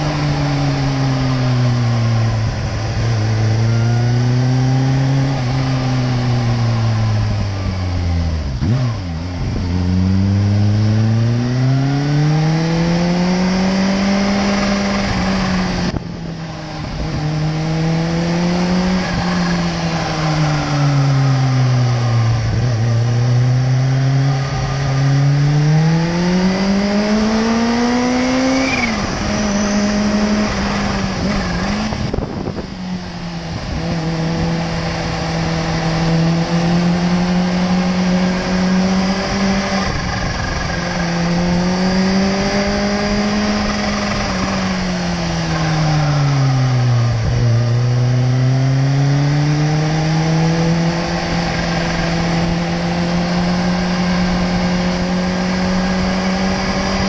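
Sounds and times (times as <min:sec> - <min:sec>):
wind noise: 0:00.0 - 0:12.8, 0:13.4 - 0:23.4, 0:24.1 - 0:57.0
motorcycle engine accelerating: 0:00.0 - 0:57.0.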